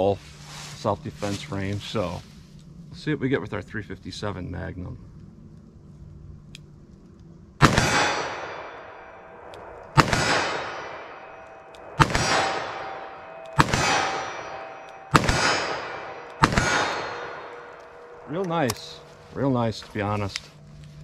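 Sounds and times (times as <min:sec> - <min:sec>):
revolver shots with ringing echo: 0:07.6 - 0:19.1.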